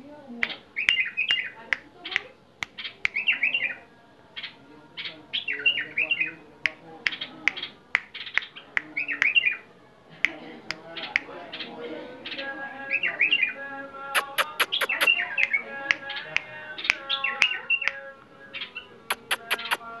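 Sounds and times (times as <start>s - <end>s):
sharp bird chirps: 14.2s - 15.6s, 18.6s - 19.8s
bird singing bubbling phrases: 14.2s - 18.0s, 18.6s - 19.8s.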